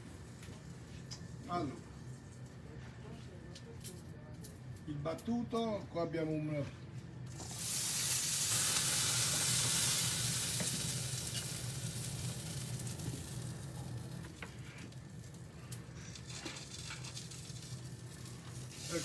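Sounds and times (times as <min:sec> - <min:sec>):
oil sizzling in pan: 0:07.3 - 0:19.0.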